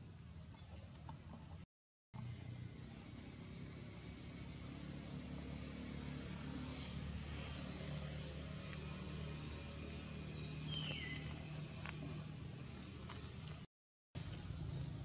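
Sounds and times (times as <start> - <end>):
distant engine drone: 2.2 - 13.6.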